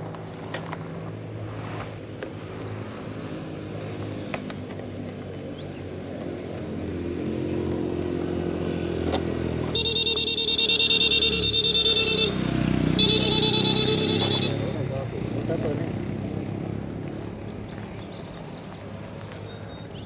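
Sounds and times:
motorcycle engine approaching: 0:02.7 - 0:20.0.

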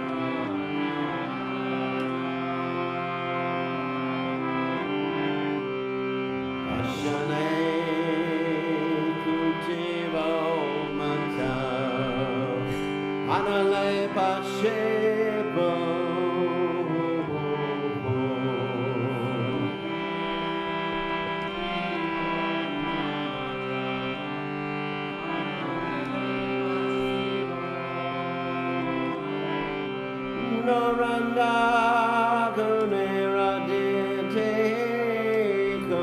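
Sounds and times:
harmonium chords: 0:00.0 - 0:36.0
man singing a chant: 0:06.7 - 0:19.9, 0:30.4 - 0:36.0.

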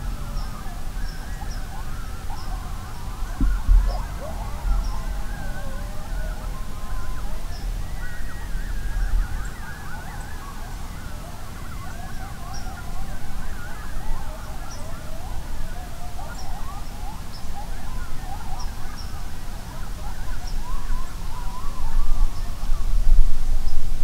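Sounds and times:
coyotes yipping and howling: 0:00.0 - 0:23.2
low rumble: 0:02.4 - 0:07.9.

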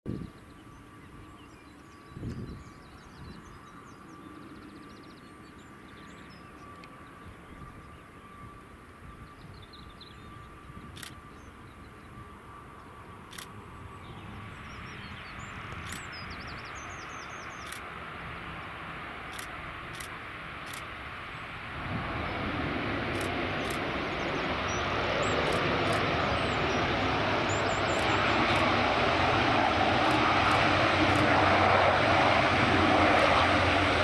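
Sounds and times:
turboprop engines droning: 0:00.1 - 0:34.0
sharp clicks: 0:15.7 - 0:16.2, 0:17.6 - 0:17.9, 0:19.3 - 0:20.9, 0:23.1 - 0:23.8, 0:25.4 - 0:26.1, 0:27.9 - 0:28.7, 0:30.0 - 0:31.3.

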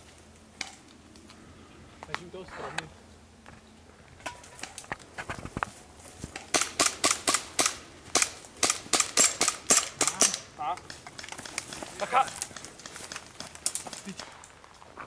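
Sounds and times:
airsoft pistol shots: 0:06.5 - 0:10.4.

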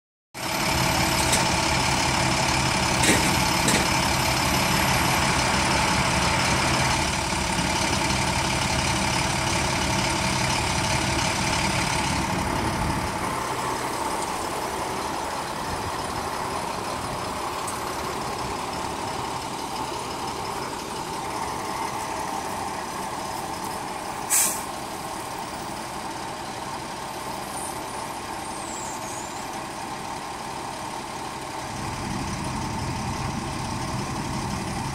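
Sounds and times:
truck engine running: 0:00.4 - 0:34.9
short sharp air hiss: 0:24.3 - 0:24.8.

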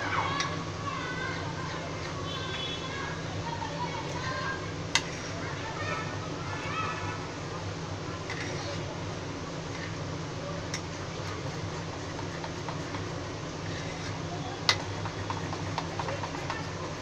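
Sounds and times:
steady low hum: 0:00.0 - 0:17.0
fingers squeezing batter: 0:10.8 - 0:17.0.

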